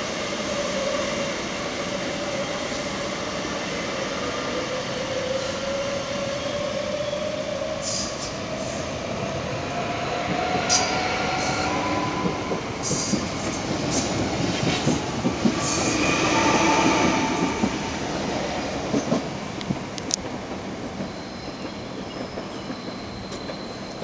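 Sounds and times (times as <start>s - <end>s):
train wheels squealing: 4.7s - 8.9s, 10.5s - 14.7s, 15.5s - 17.8s, 21.0s - 24.0s.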